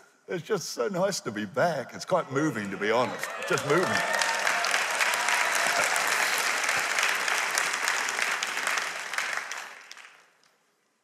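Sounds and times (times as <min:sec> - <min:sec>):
congregation applauding: 0:02.6 - 0:10.6.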